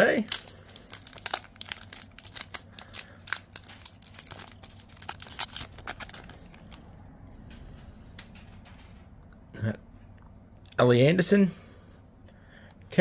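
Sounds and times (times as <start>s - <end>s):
foil wrapper tearing and crinkling: 0.0s - 6.8s
cards rustling: 0.1s - 6.9s.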